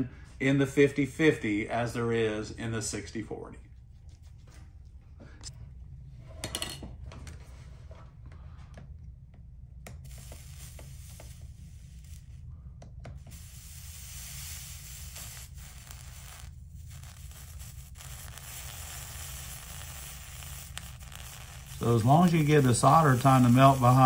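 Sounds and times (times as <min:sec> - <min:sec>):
low hum: 0:00.0 - 0:24.0
soldering iron hiss: 0:09.9 - 0:12.4, 0:13.2 - 0:24.0.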